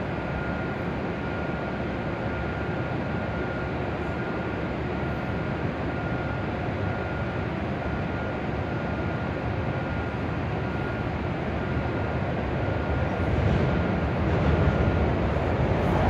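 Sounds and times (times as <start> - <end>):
train equipment humming: 9.9 - 16.0.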